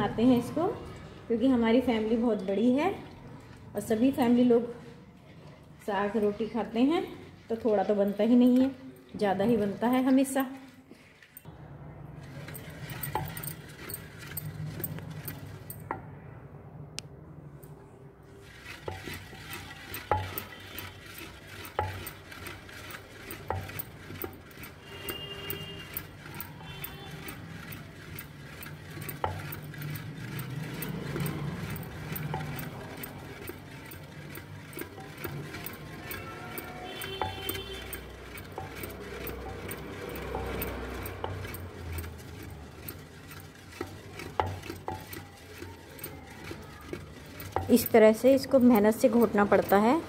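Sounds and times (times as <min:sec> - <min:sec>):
wet stirring and churning: 0:00.0 - 0:16.1, 0:18.2 - 0:50.0
stick knocking against pot: 0:18.8 - 0:27.5, 0:34.9 - 0:42.1, 0:43.6 - 0:49.9.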